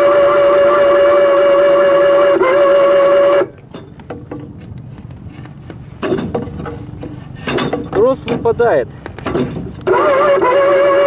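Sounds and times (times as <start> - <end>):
electric winch whining: 0.0 - 3.6, 9.8 - 11.0.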